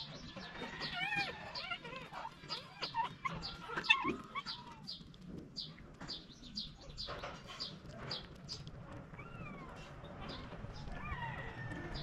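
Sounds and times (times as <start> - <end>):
low wavering bird calls: 0.0 - 5.8
birds chirping: 0.0 - 12.0.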